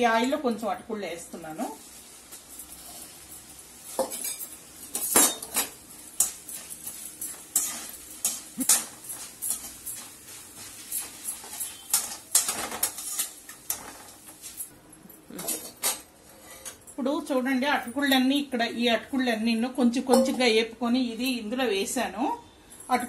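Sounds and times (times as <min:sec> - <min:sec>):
rice frying in oil: 0:01.3 - 0:14.7.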